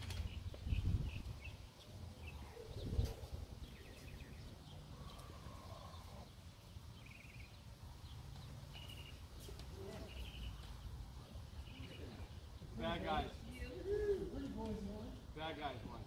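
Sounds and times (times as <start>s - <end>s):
small bird chirping: 0.0s - 12.6s.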